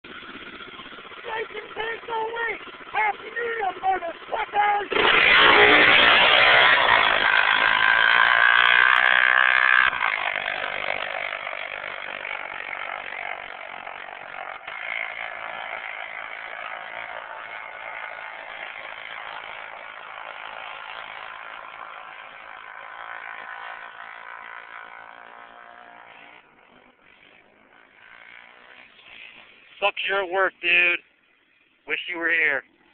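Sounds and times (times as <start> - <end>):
quad bike engine revving: 0.0 - 32.9.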